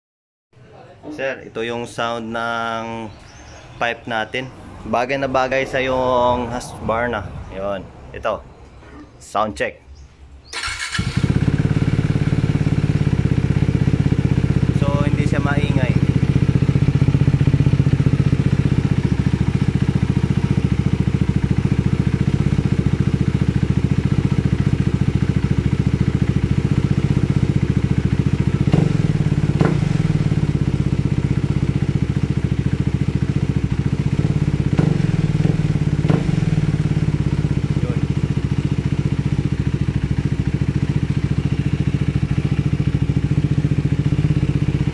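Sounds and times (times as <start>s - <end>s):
motorcycle engine idling: 10.4s - 44.9s.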